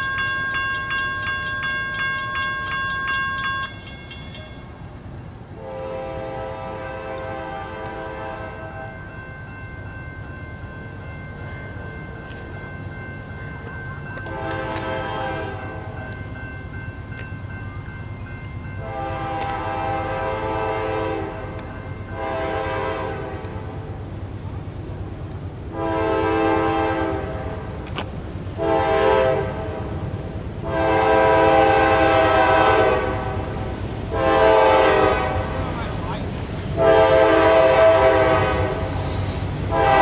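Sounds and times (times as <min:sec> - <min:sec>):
low rumble of train: 0:00.0 - 0:40.0
locomotive air horn blasts: 0:05.6 - 0:09.0, 0:14.2 - 0:16.0, 0:18.8 - 0:23.6, 0:25.7 - 0:27.7, 0:28.6 - 0:29.9, 0:30.6 - 0:35.7, 0:36.8 - 0:40.0.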